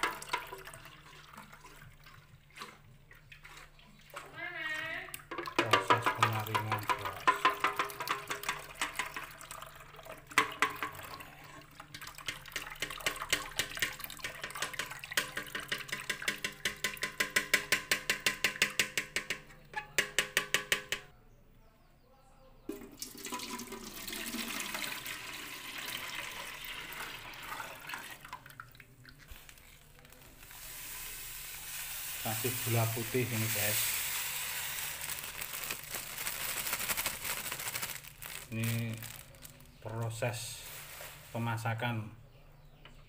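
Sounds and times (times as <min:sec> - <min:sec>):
liquid pouring: 0:00.0 - 0:04.3, 0:05.2 - 0:17.5, 0:22.7 - 0:39.8.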